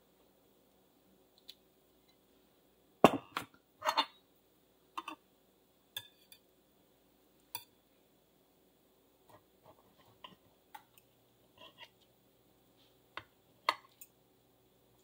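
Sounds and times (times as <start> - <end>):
cutlery clinking on ceramic plate: 3.8 - 4.2.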